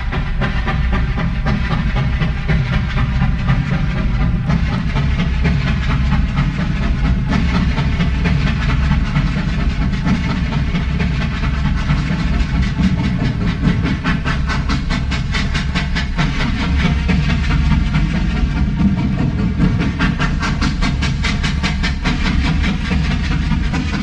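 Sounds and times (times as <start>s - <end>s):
steam train rumble and beat: 0.0s - 24.0s.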